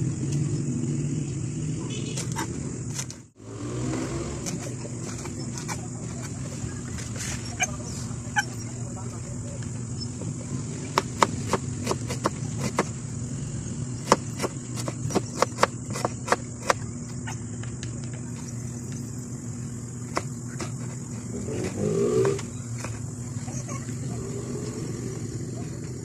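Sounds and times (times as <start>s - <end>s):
knife chopping on cutting board: 10.9s - 12.9s, 14.0s - 16.8s.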